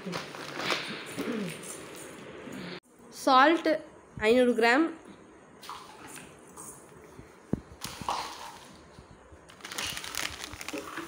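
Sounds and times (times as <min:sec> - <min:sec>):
plastic packets rustling: 0:07.8 - 0:11.0.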